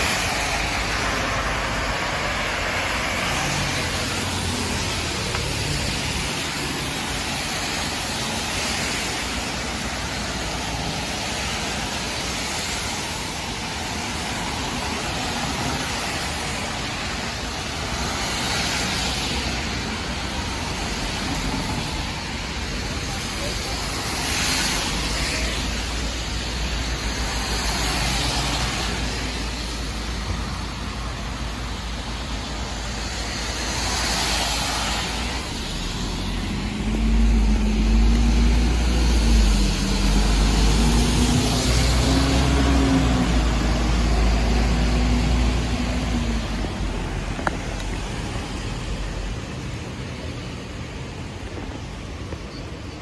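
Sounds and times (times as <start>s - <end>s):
tyres hissing on wet road: 0.0s - 53.0s
heavy vehicle engine rumbling: 19.3s - 53.0s.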